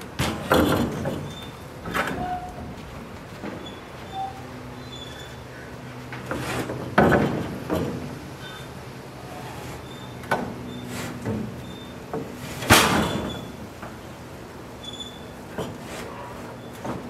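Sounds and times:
loud clunk: 12.1 - 13.6.

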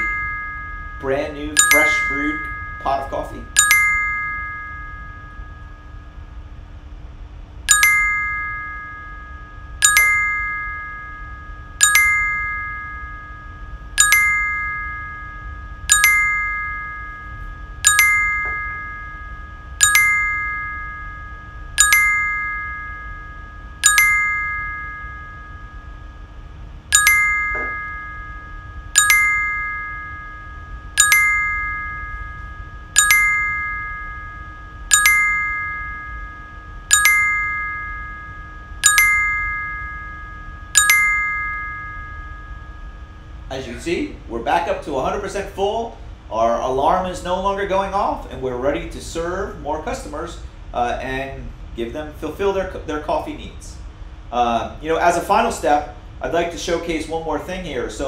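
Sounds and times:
bright alert chime ding: 0.0 - 5.8, 7.7 - 26.1, 26.9 - 43.3.

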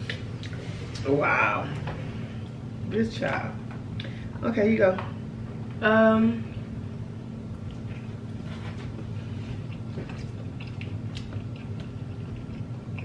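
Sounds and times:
soft chewing: 0.0 - 1.1, 7.5 - 13.0
steady low hum: 0.0 - 13.0.

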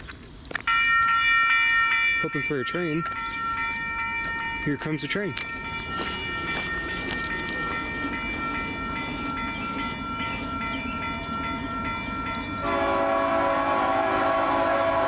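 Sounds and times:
freight train horn: 12.6 - 15.0.

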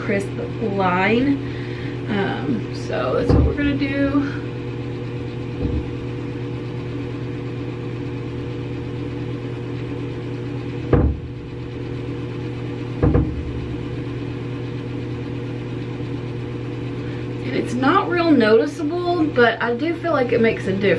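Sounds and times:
low machine hum: 0.0 - 20.9
short thumps: 3.1 - 4.0, 5.5 - 6.2, 10.8 - 11.8, 12.9 - 14.2.

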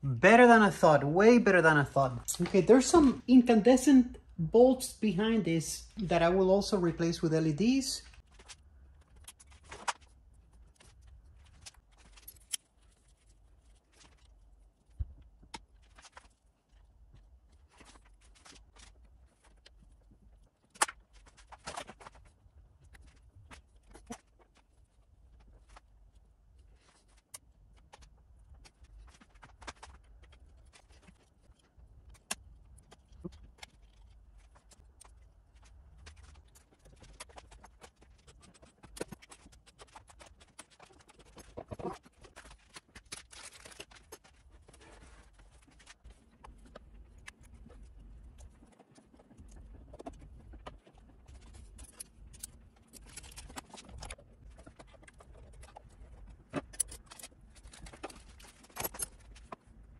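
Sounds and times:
clicks and clatter of hand tools: 48.7 - 59.6.

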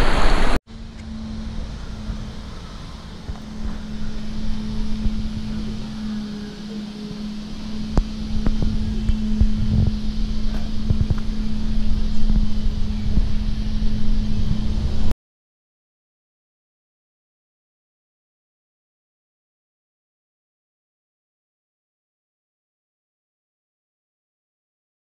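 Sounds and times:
steady low hum: 0.0 - 15.1
wind buffeting microphone: 0.0 - 15.1.

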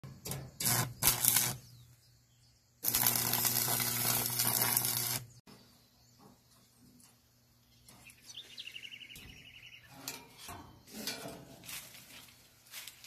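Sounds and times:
welding arc crackling: 0.2 - 1.6, 2.8 - 5.4.

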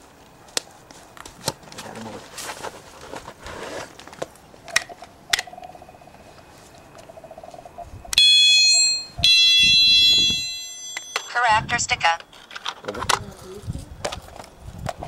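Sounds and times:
shrill electronic alarm tone: 8.2 - 12.2.

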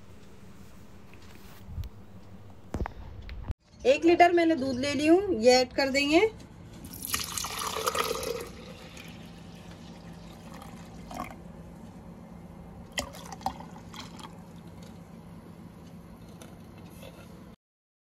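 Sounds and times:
low steady hum: 0.0 - 17.6
milk pouring into a jug: 6.8 - 11.4, 12.9 - 15.0.

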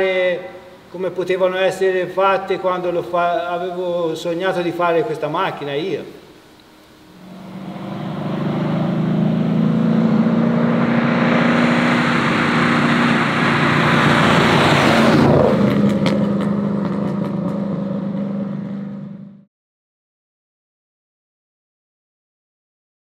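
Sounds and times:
exhaust crackles: 6.6 - 19.4
car engine passing: 7.0 - 19.4.

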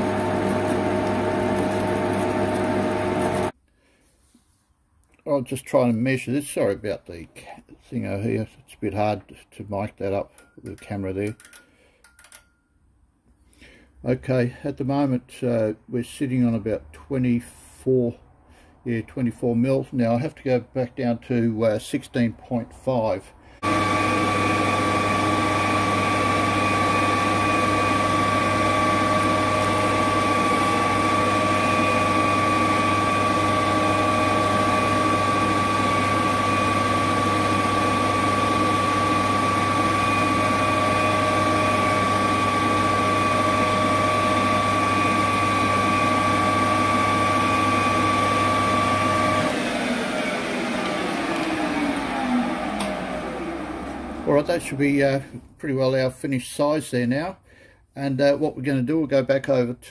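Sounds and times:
lathe winding down: 0.0 - 3.5, 23.6 - 55.0
metal lathe whining: 23.6 - 54.8.

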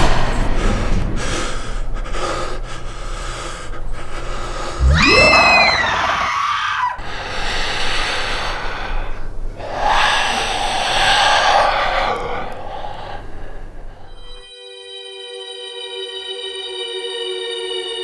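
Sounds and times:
ghostly creature shrieking: 4.8 - 14.4
noisy rushing swells: 7.0 - 14.4.

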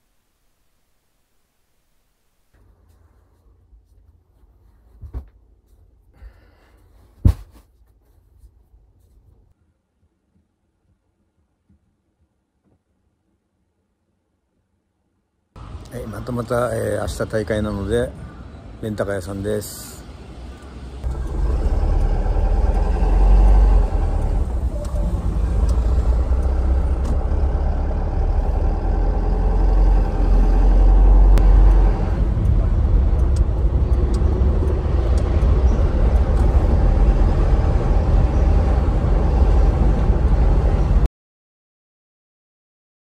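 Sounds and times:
truck engine and road rumble: 15.6 - 41.1.

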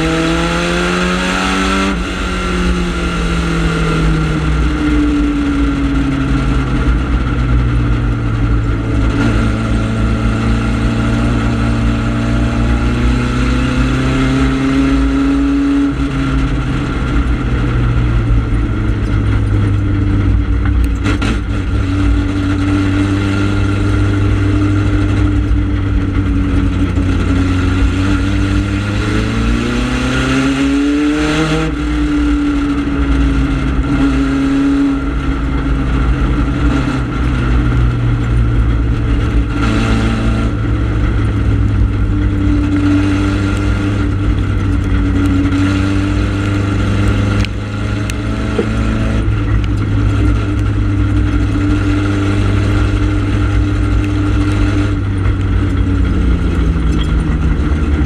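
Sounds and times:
race car engine running hard: 0.0 - 58.0.

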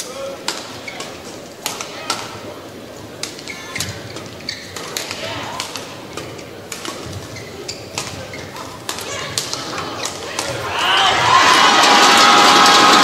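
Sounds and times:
murmur of voices: 0.0 - 13.0
rackets hitting shuttlecock: 0.4 - 2.4, 3.2 - 11.5.

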